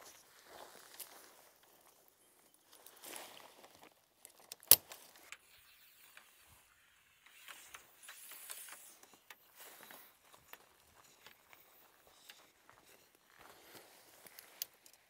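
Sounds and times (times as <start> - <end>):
tent pole clicking: 4.3 - 5.4, 7.2 - 15.0.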